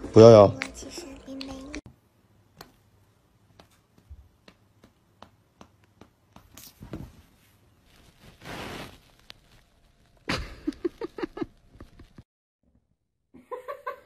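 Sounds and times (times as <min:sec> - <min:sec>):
cats' paws scuffling: 0:03.5 - 0:12.2.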